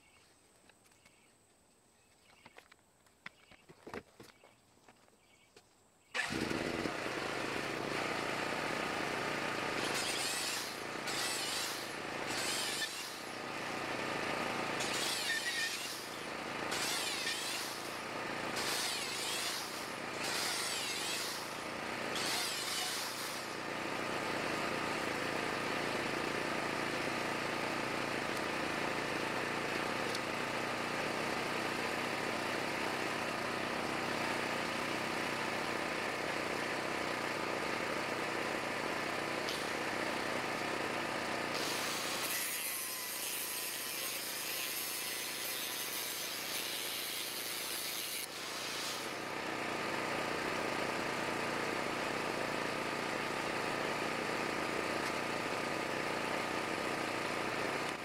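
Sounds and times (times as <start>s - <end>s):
power tool motor running: 6.2s - 58.0s
angle grinder cutting steel: 9.6s - 23.6s, 41.5s - 49.2s.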